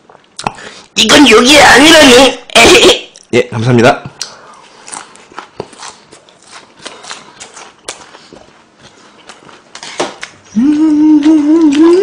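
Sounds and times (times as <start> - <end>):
wet mouth clicks: 0.1 - 0.6
chewing food crunches: 4.2 - 10.6.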